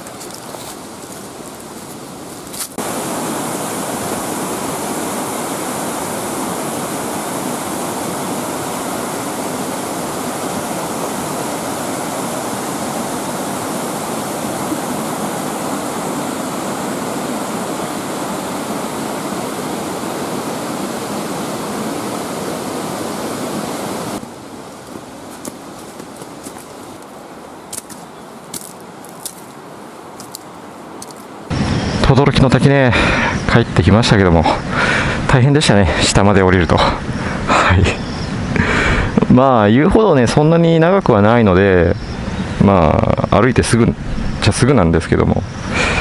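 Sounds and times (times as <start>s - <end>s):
river rushing over boulders: 0.0s - 31.6s.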